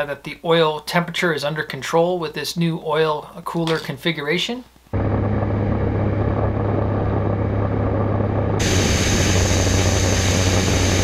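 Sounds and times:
high steady whine: 4.9 - 11.0
air rush: 5.0 - 11.0
turboprop engine drone: 5.0 - 11.0.

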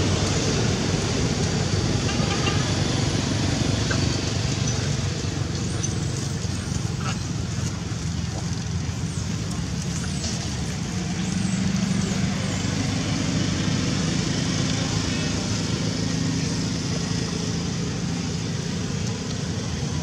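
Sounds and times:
motor vehicle rumble: 0.0 - 20.0.

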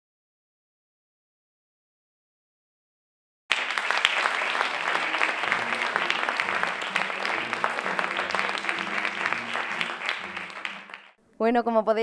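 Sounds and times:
audience applauding: 3.5 - 11.2.

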